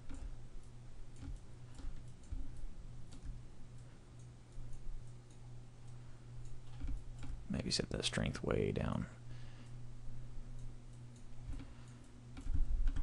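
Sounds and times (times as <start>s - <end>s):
computer mouse clicks: 0.0s - 7.4s, 10.5s - 13.0s
low electrical hum: 0.0s - 13.0s.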